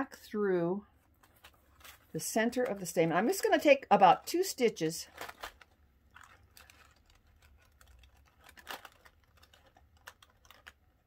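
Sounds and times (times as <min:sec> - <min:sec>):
soft fabric rustling: 0:00.9 - 0:03.7.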